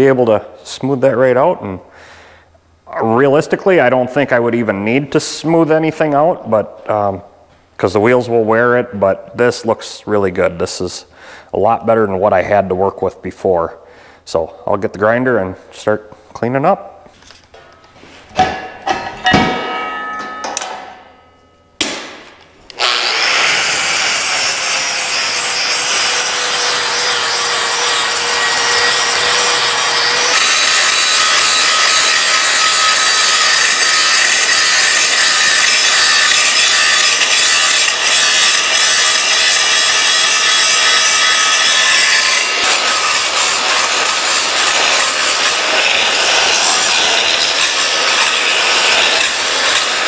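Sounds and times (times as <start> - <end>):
angle grinder grinding steel: 22.7 - 50.0.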